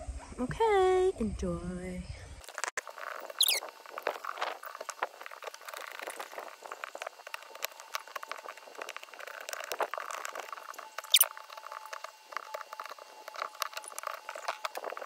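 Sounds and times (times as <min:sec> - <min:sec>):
high falling squeak: 0:03.3 - 0:03.7.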